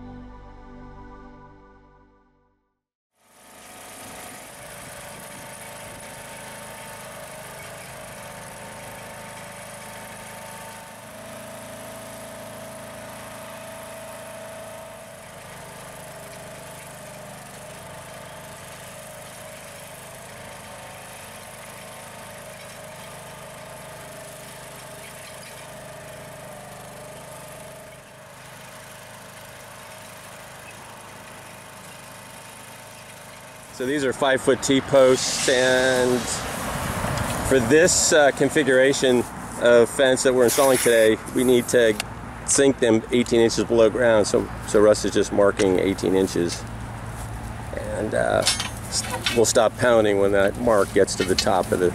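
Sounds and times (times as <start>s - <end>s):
trencher engine running: 3.2s - 51.9s
steady whining tone: 33.7s - 38.9s
chain cutting into dry soil: 40.4s - 42.0s, 47.8s - 51.9s.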